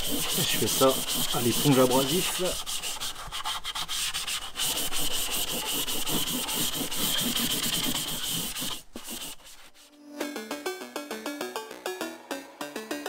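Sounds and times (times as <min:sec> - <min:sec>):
scouring pad scrubbing metal: 0:00.0 - 0:09.8.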